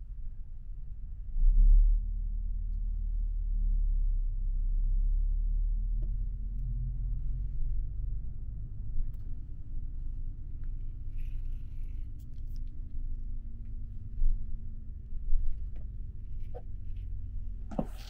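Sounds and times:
coach engine and road rumble: 5.0s - 18.0s.

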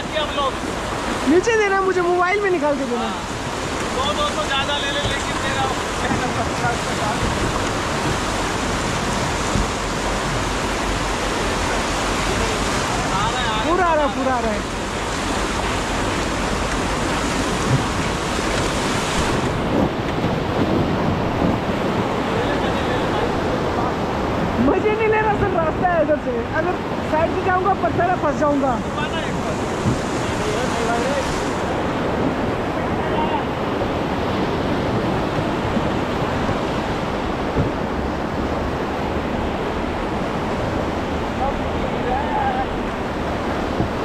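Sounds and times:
whitewater rapids rushing: 0.0s - 44.0s.

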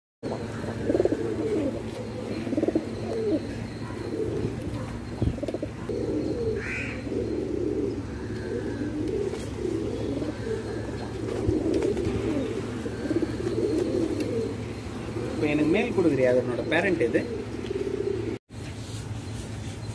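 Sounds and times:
pigeons cooing: 0.2s - 18.4s.

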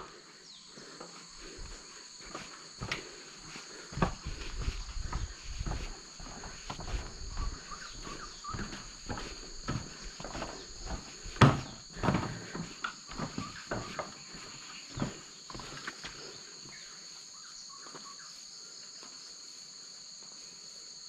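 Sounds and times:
insects chirping: 0.0s - 21.0s
footsteps on wooden planks: 0.8s - 16.8s.

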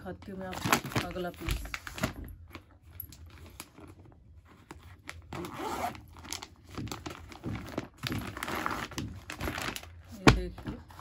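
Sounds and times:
plastic crinkling: 0.0s - 11.0s
zip-like plastic rasp: 5.3s - 6.0s.

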